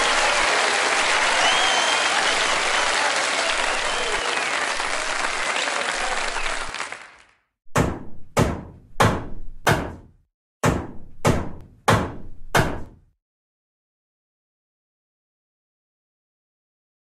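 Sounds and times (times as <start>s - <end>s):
applause: 0.0s - 7.5s
cartoon head-banging thunks: 7.7s - 13.0s.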